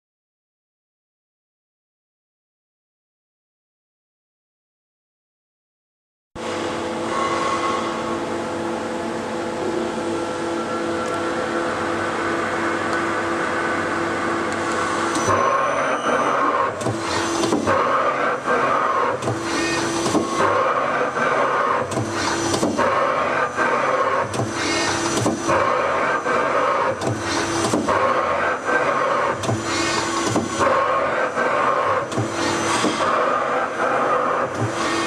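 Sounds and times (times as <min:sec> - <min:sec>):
lathe turret motor whine: 0:06.4 - 0:35.0
lathe turret clunks: 0:19.1 - 0:20.6, 0:24.2 - 0:25.6, 0:26.9 - 0:28.1, 0:29.3 - 0:30.9.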